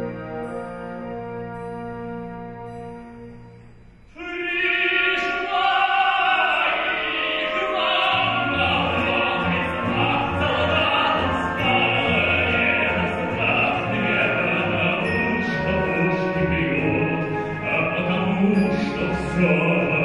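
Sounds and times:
symphony orchestra: 0.0s - 20.0s
tenor singing: 4.1s - 20.0s.

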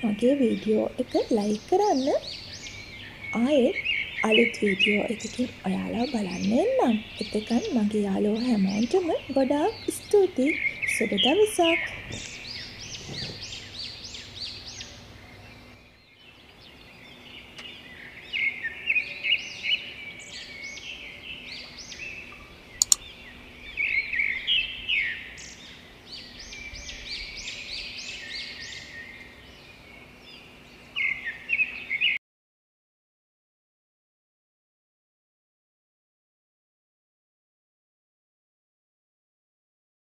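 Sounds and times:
small birds chirping: 0.0s - 32.2s
sharp click: 22.8s - 23.0s.

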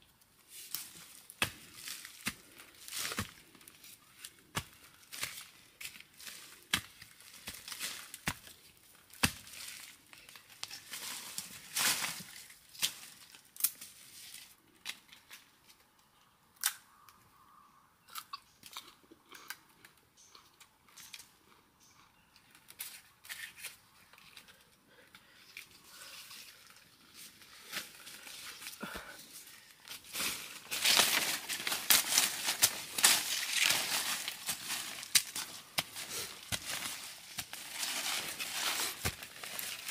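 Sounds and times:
rustling leaf litter: 25.9s - 39.9s
husk tearing and crackling: 26.1s - 39.9s.

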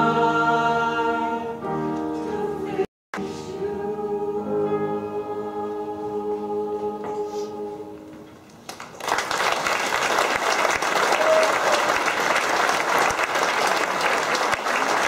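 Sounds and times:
audience applause: 8.7s - 15.0s.

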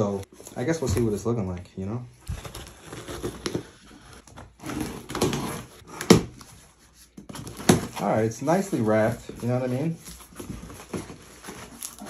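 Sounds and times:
cardboard rustling: 2.2s - 12.0s
box cutter slitting tape: 4.6s - 6.4s.

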